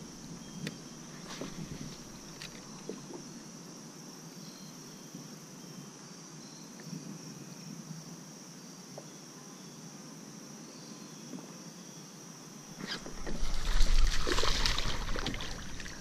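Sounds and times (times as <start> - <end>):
insects chirring: 0.0 - 16.0
fish splashing water: 12.8 - 16.0.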